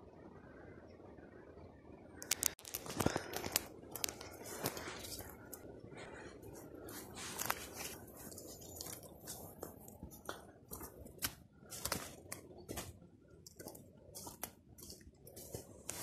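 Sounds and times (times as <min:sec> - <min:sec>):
leaves rustling and stems snapping: 0:02.2 - 0:05.7, 0:06.8 - 0:16.0
footsteps in scrub: 0:06.5 - 0:16.0.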